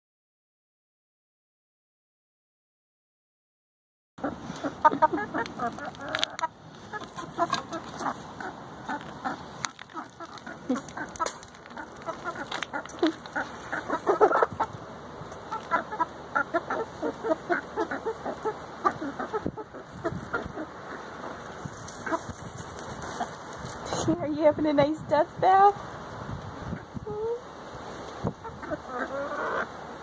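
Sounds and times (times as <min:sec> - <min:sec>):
hens clucking: 0:04.2 - 0:24.2, 0:28.0 - 0:30.0.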